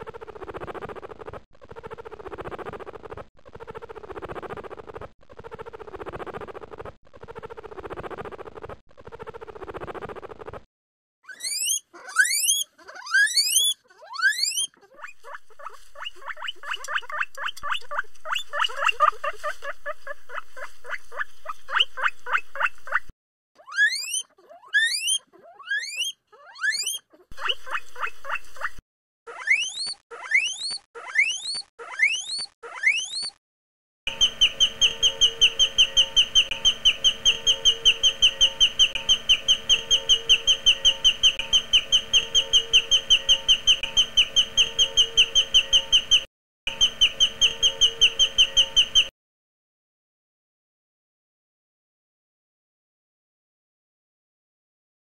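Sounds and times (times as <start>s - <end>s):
guinea pig purring: 0.0s - 10.7s, 11.9s - 23.1s, 23.8s - 28.8s, 34.1s - 46.3s
guinea pig wheeking whistles: 11.3s - 23.0s, 23.6s - 28.7s, 29.3s - 33.4s, 34.1s - 49.1s.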